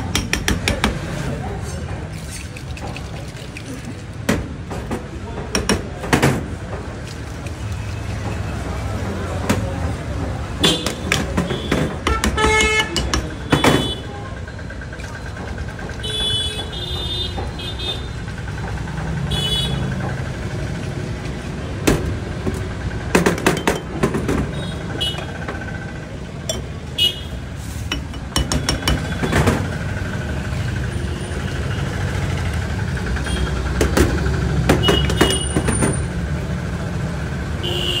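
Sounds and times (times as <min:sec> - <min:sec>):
glass and ice clinking: 0:23.5 - 0:24.0, 0:26.4 - 0:26.8, 0:27.9 - 0:29.0.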